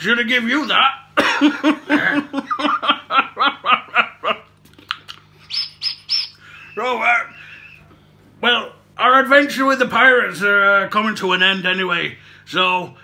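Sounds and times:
man laughing hard: 0:01.2 - 0:04.6.

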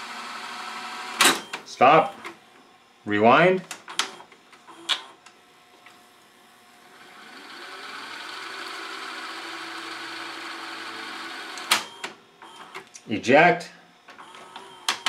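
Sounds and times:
vcr mechanism clicks: 0:03.7 - 0:04.2, 0:11.5 - 0:12.9
tape reels whirring: 0:06.9 - 0:12.8.

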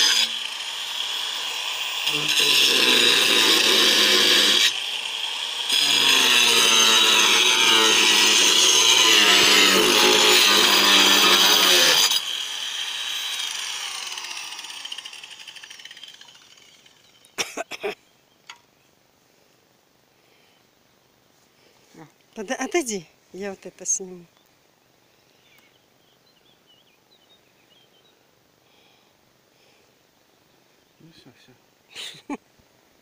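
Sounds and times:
angle grinder cutting sheet: 0:00.0 - 0:17.0
grinder spinning down: 0:00.0 - 0:17.2.

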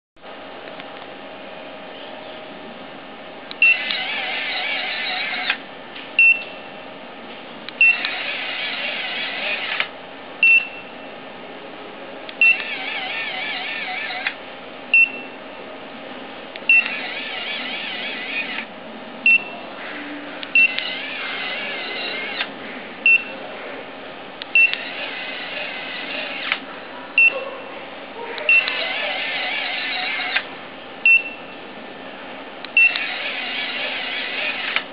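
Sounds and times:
small electric motor whirring: 0:03.7 - 0:05.6, 0:07.9 - 0:09.9, 0:12.5 - 0:14.4, 0:16.8 - 0:18.7, 0:20.6 - 0:22.5, 0:24.6 - 0:26.6, 0:28.6 - 0:30.5, 0:32.9 - 0:34.9.

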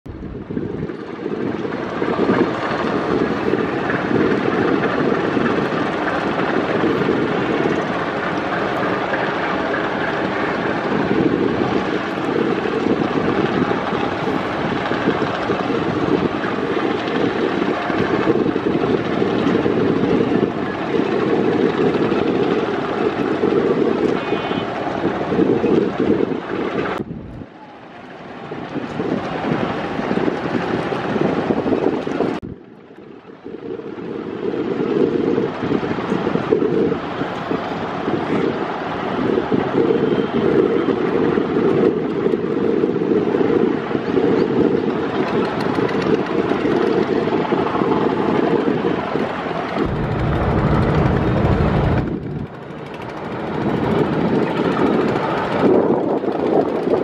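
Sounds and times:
wind on microphone: 0:00.0 - 0:57.0
boat engine drone: 0:00.1 - 0:27.0, 0:49.4 - 0:57.0.

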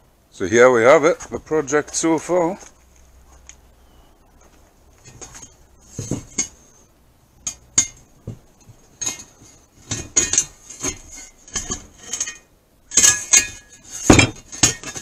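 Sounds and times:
metallic clinks and knocks: 0:07.4 - 0:15.0.

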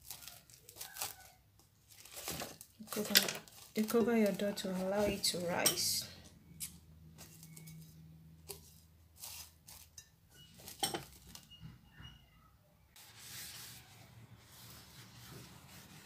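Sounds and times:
cling film crinkling: 0:00.0 - 0:05.2.

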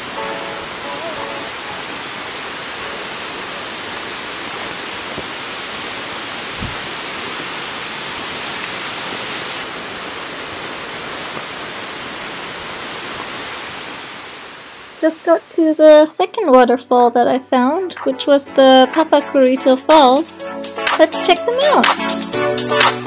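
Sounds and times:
waterfall rushing into pool: 0:00.0 - 0:15.6
soft low bump: 0:06.6 - 0:06.9.

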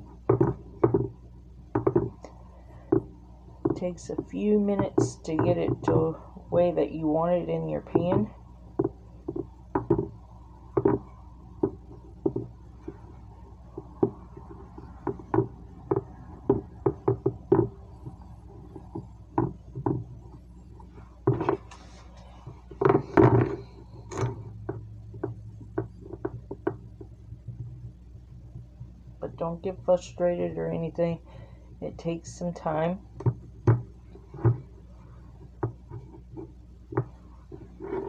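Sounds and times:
hands pressing dough into pan: 0:07.9 - 0:21.7.

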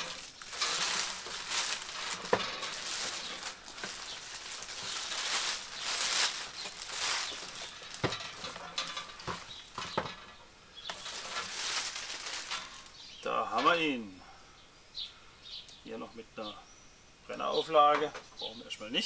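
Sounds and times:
plastic film crinkling: 0:00.0 - 0:10.0, 0:10.9 - 0:13.0.

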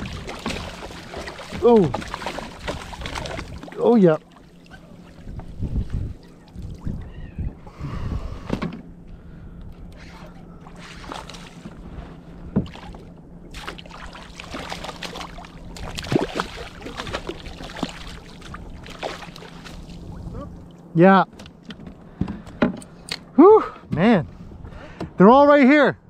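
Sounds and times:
water splashes: 0:00.0 - 0:07.2, 0:10.1 - 0:11.8, 0:12.6 - 0:20.9
low steady hum: 0:00.0 - 0:26.0.

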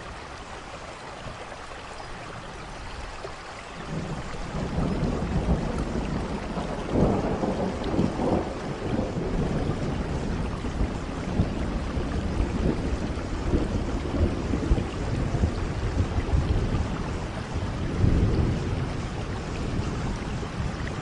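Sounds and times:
steady rain falling: 0:00.0 - 0:21.0
low rumble of thunder: 0:03.8 - 0:21.0.

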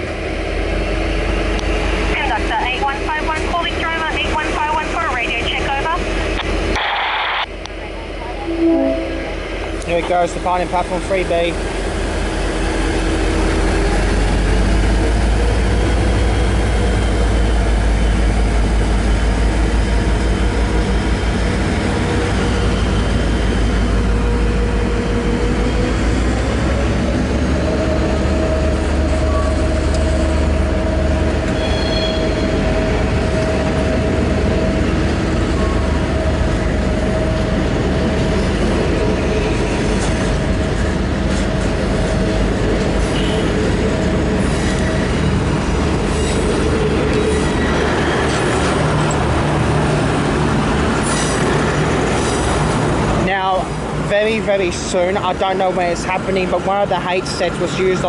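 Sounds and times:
diesel locomotive engine rumbling: 0:00.0 - 0:58.0
train carriages rolling past: 0:07.7 - 0:58.0
steady tone: 0:08.4 - 0:09.8.

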